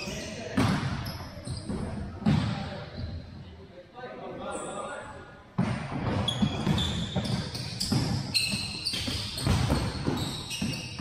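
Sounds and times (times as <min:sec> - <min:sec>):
shoes squeaking on gym floor: 0:00.0 - 0:02.0, 0:06.1 - 0:11.0
ball bouncing on wooden floor: 0:05.6 - 0:11.0.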